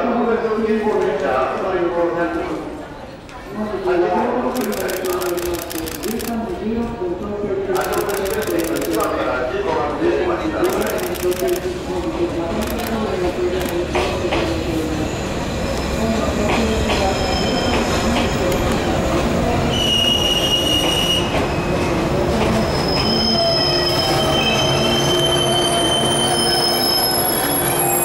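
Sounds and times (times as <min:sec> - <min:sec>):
electric train rumbling: 0:10.5 - 0:28.0.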